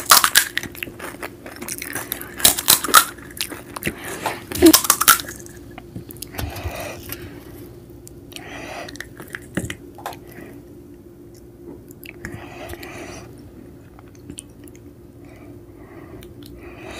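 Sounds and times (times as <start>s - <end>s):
crisp crunching: 0.0s - 6.3s
wet chewing and squishing: 0.0s - 7.4s, 8.0s - 10.4s, 11.3s - 13.0s, 13.8s - 14.9s.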